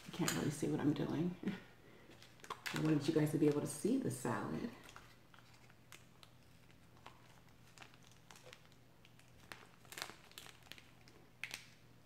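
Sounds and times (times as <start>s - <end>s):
plastic packet crinkling: 2.1s - 3.6s, 4.6s - 11.8s.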